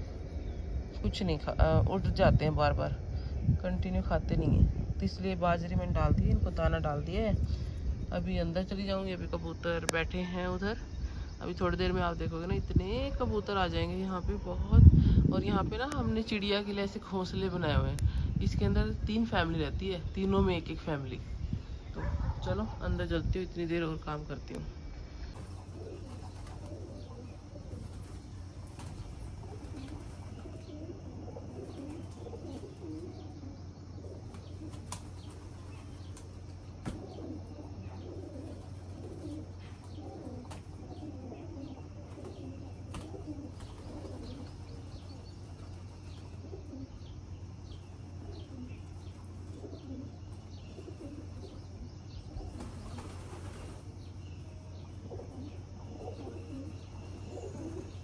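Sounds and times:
steady low hum: 0.0 - 58.0
pigeons cooing: 24.9 - 58.0
pigeon wingbeats: 25.3 - 33.1, 34.1 - 46.9, 52.4 - 53.9.

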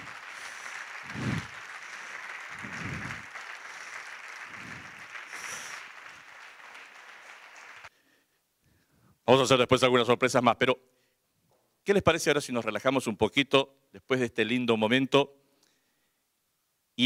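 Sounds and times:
low voices: 0.0 - 6.0
audience applauding: 0.0 - 7.9.

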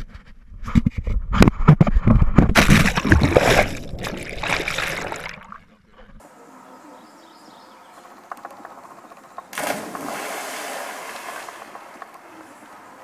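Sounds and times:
camera splashing into river: 2.5 - 5.6, 9.5 - 12.0
water sloshing and churning: 2.6 - 6.2
faint outdoor background: 4.5 - 13.0.

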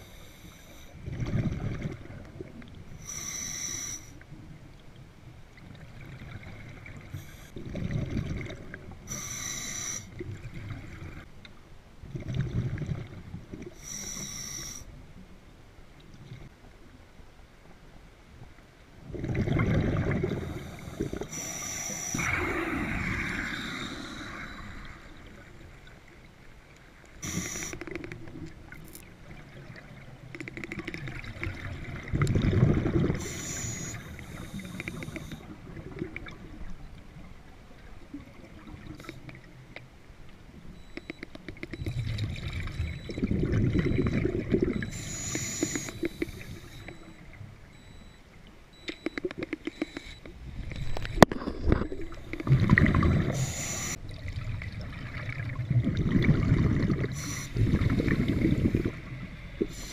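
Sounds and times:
exhaled bubbles rumbling: 1.0 - 2.8, 5.6 - 9.0, 19.0 - 21.3, 22.2 - 26.0, 27.8 - 33.3, 41.7 - 45.0, 50.5 - 59.8
regulator hissing inhalations: 3.0 - 4.2, 9.1 - 10.1, 13.8 - 14.9, 20.6 - 22.3, 27.2 - 27.8, 33.2 - 35.4, 44.9 - 46.8, 53.3 - 54.0, 57.2 - 57.7.

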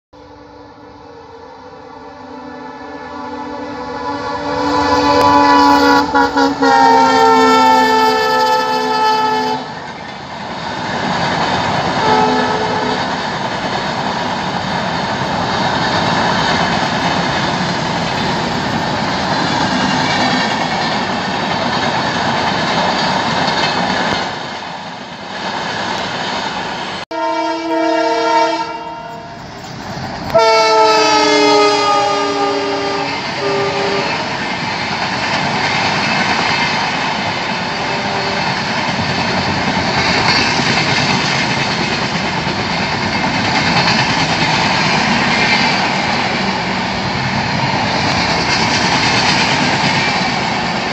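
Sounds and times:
diesel locomotive horn: 0.2 - 9.9, 12.0 - 13.2, 27.1 - 29.6, 30.2 - 34.3, 37.7 - 38.6
train wheels rolling on track: 0.2 - 50.9.

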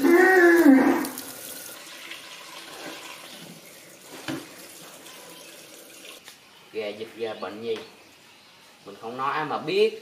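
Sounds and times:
tap water pouring into pot: 1.0 - 6.2.

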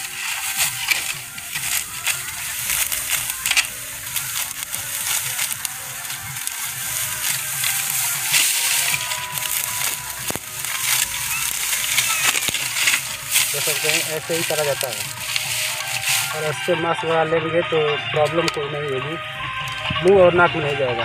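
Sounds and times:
sickle cutting stalks: 0.0 - 17.5, 18.2 - 20.8
dry stalks crunching and rustling: 0.0 - 21.0
faint background music: 0.0 - 21.0.

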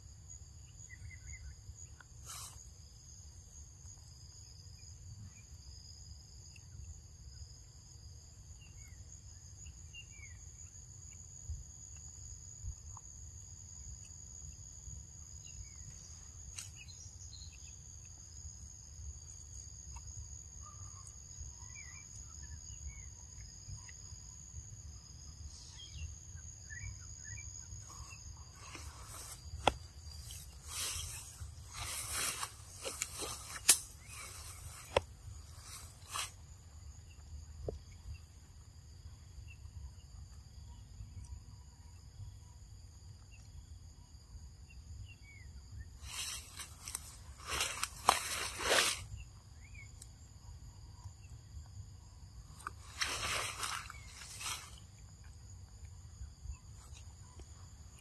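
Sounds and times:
insects droning: 0.0 - 58.0
faint bird chirps: 20.6 - 24.1, 25.2 - 34.9.

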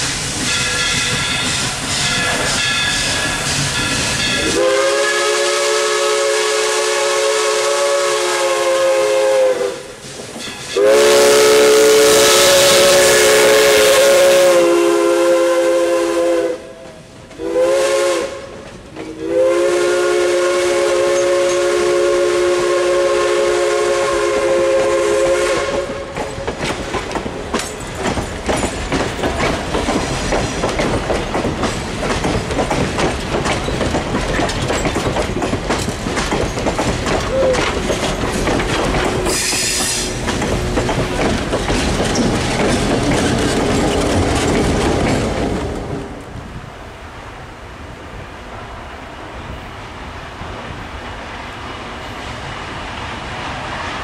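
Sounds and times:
train wheels clattering over rail joints: 0.0 - 4.6, 25.6 - 46.1
steam whistle chord: 4.2 - 9.9, 10.7 - 26.1, 39.2 - 40.2.

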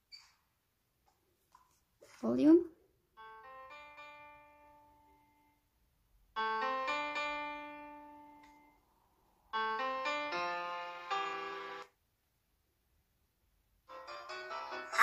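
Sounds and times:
piano music through tablet speakers: 3.1 - 5.7, 6.3 - 12.0, 13.9 - 15.0.

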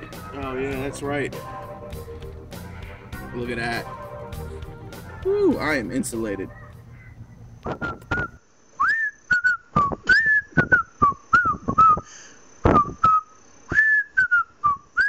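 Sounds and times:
person whistling a tune: 7.7 - 15.0.

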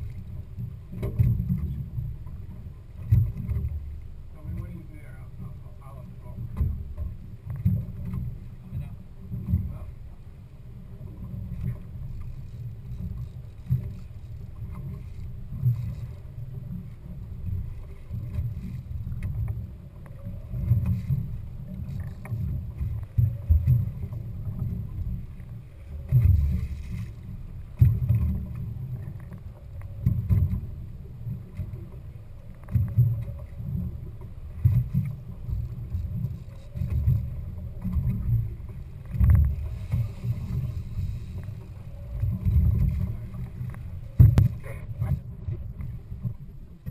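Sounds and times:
boat engine rumble: 0.0 - 46.9.

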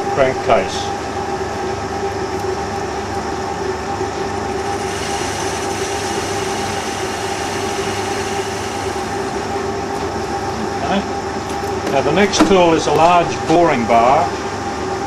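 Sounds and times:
lathe machine hum: 0.8 - 15.0
lathe tool cutting hiss: 4.6 - 9.6.

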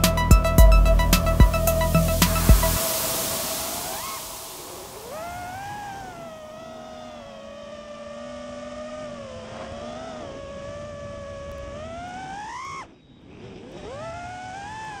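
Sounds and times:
quadcopter motors whining: 0.6 - 15.0.

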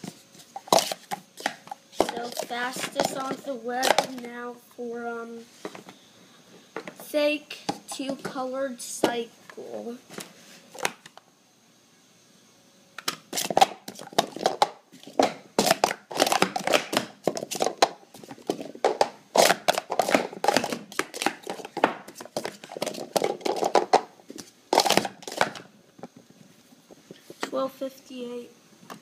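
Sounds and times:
plastic cups clattering: 0.4 - 4.3, 13.0 - 25.7.

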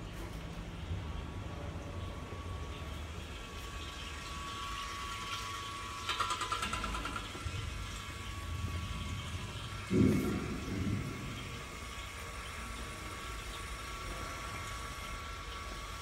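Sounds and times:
popcorn machine motor rumble and whine: 0.0 - 16.0
rapid metallic ticking: 6.1 - 7.4.

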